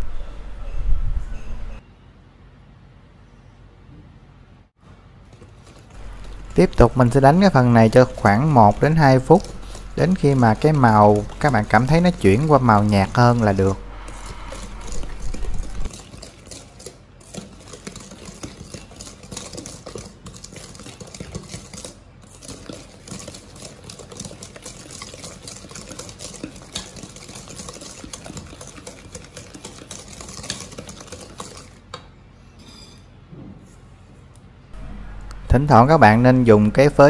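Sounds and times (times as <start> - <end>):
whisk scraping metal bowl: 5.7 - 31.8.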